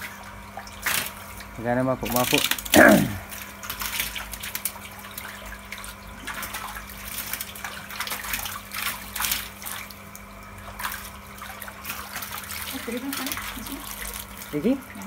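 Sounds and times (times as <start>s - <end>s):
fish splashing in water: 0.0s - 15.0s
person wading in water: 0.0s - 15.0s
steady low hum: 0.0s - 15.0s.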